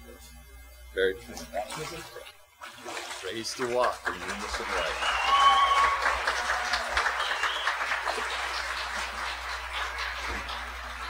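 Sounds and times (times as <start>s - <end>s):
congregation applauding: 3.5s - 11.0s.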